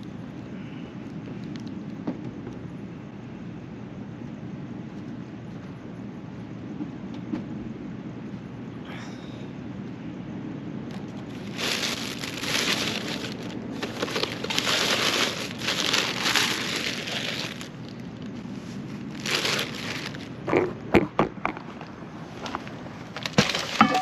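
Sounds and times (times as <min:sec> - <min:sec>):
paper bag rustling: 0:11.2 - 0:20.5, 0:23.1 - 0:24.0.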